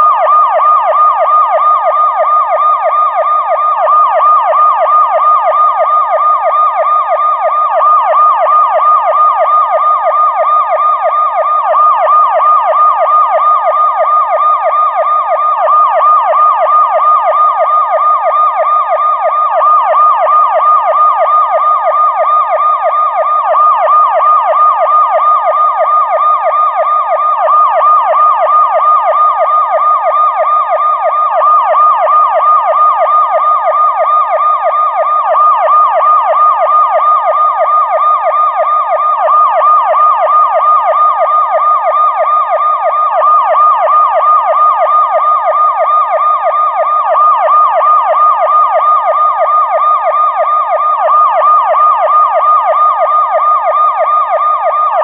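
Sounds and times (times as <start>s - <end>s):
police siren yelping: 0.0s - 55.0s.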